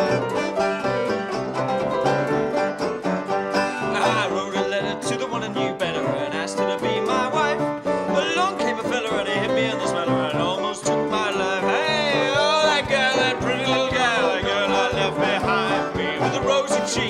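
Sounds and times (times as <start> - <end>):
banjo playing folk tune: 0.0 - 17.0
ragtime piano: 0.0 - 17.0
man singing: 3.6 - 17.0.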